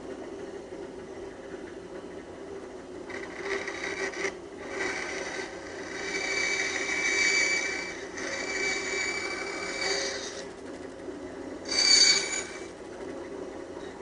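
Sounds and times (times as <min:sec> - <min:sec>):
running saw hum: 0:03.1 - 0:13.1
bandsaw rasping through wood: 0:03.2 - 0:10.5, 0:11.7 - 0:12.7.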